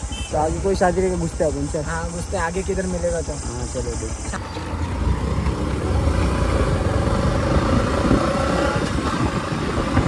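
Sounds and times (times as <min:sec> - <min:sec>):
motorcycle engine running: 0:04.2 - 0:10.0
wind rumble on microphone: 0:05.5 - 0:10.0.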